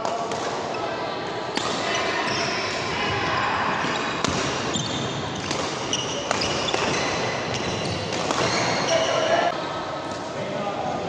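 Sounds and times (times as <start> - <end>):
shoes squeaking on court floor: 3.8 - 9.5.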